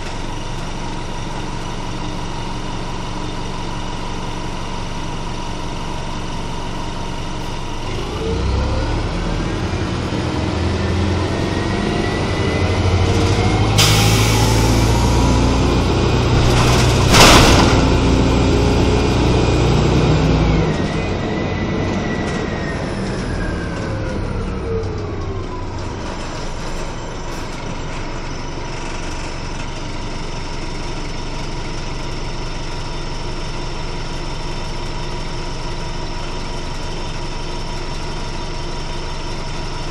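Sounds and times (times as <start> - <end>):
bus engine: 0.0 - 39.9
rising and falling whine: 7.8 - 27.0.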